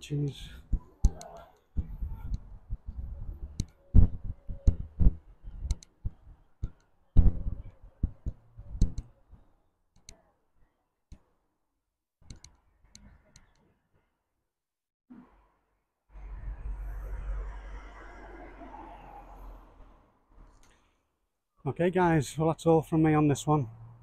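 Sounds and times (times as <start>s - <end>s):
sharp clicks: 0.6s - 9.1s, 12.2s - 13.6s
microphone handling rumbles: 1.8s - 6.4s, 7.2s - 8.9s.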